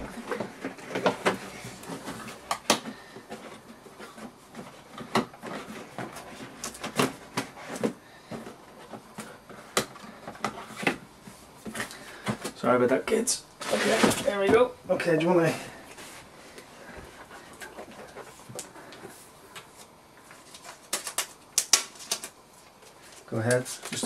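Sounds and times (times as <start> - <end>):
packaging rustling: 17.3 - 24.0.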